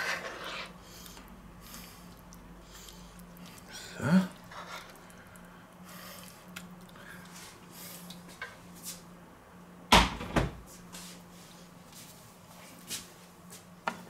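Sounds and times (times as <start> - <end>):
steady low hum: 0.0 - 14.0
knocks in a kitchen: 9.9 - 10.6.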